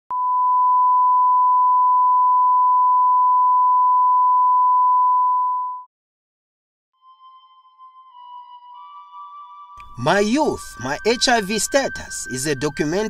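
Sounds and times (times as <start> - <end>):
sine-wave reference tone: 0.1 - 5.9.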